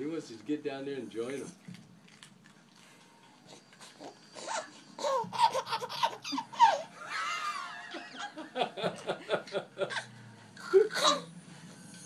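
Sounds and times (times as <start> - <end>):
baby laughing and squealing: 4.4 - 7.7.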